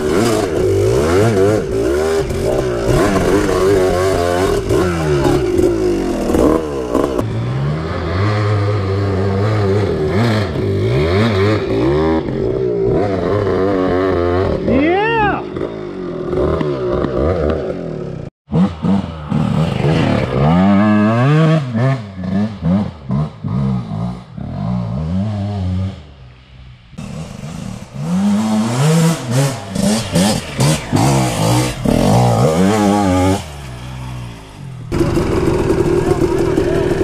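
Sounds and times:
dirt bike engine revving: 0:00.0 - 0:37.0.

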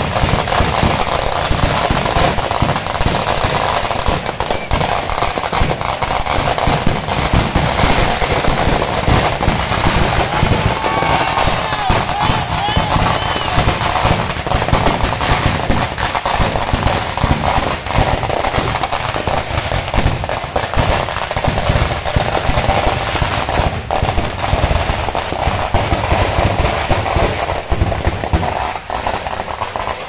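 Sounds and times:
firecrackers and fireworks banging: 0:00.0 - 0:30.0.

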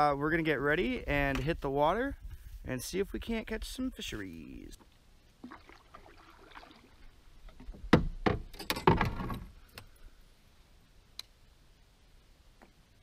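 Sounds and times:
paddle knocking on canoe hull: 0:07.6 - 0:09.3.

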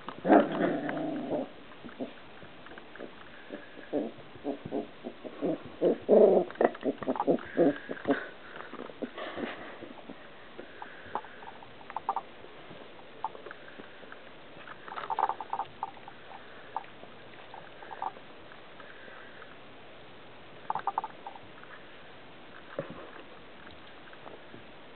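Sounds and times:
puppies grunting and growling: 0:00.2 - 0:02.2, 0:03.0 - 0:12.2.

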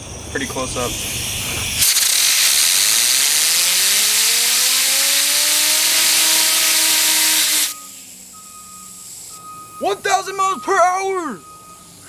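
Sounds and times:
fidget spinner whine: 0:00.5 - 0:09.4
compressed air blow gun hissing: 0:00.6 - 0:08.3, 0:08.9 - 0:09.4.

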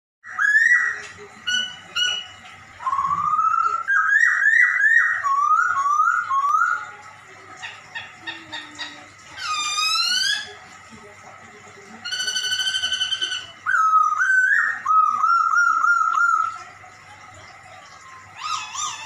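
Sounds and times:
bird calling in meow-like notes: 0:18.1 - 0:19.0.

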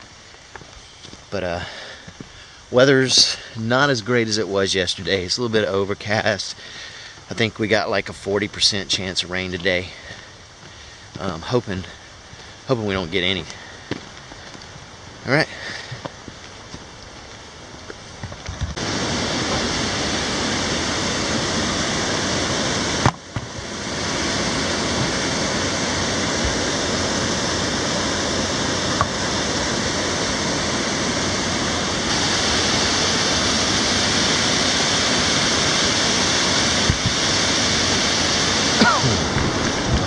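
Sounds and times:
river water roaring through gorge: 0:18.8 - 0:40.0.

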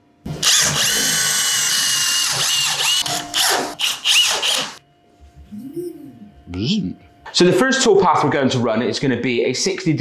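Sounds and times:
cordless drill whining: 0:00.4 - 0:04.8.

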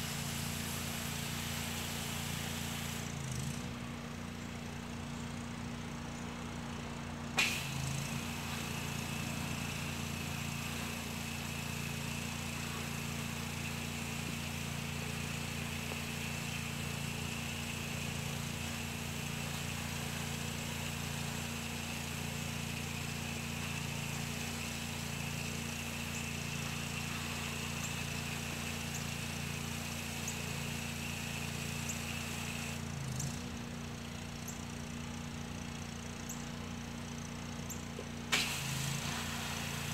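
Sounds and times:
water spray hissing: 0:00.0 - 0:03.2, 0:07.4 - 0:32.8, 0:38.3 - 0:39.9
pressure washer engine running: 0:00.0 - 0:39.9.

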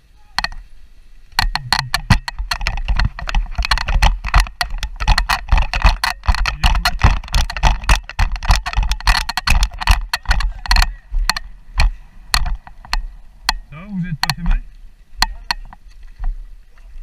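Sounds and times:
sharp knock: 0:01.4 - 0:02.5
camera rattling and knocking: 0:01.4 - 0:14.6, 0:15.2 - 0:16.4.

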